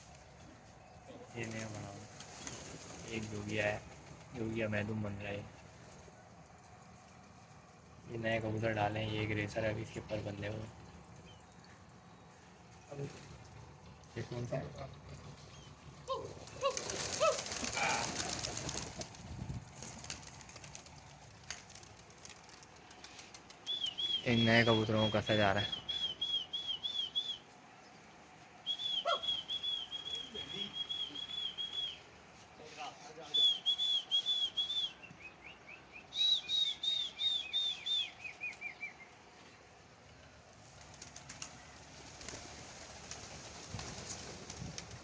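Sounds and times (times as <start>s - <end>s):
pigeon wingbeats: 1.4s - 4.6s, 14.9s - 23.9s, 40.5s - 45.0s
lower quicker whistled notes: 28.6s - 32.1s, 33.2s - 35.2s, 36.1s - 38.9s
person whistling: 33.4s - 35.1s.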